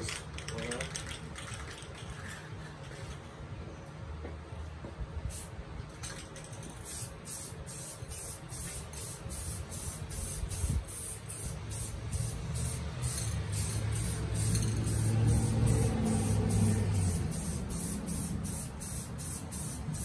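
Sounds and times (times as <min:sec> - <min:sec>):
aerosol spray can hissing: 0:06.8 - 0:20.0.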